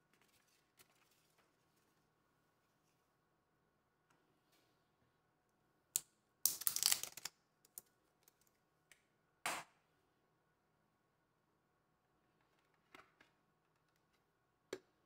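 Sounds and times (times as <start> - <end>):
batteries clicking and clattering: 6.5 - 8.5.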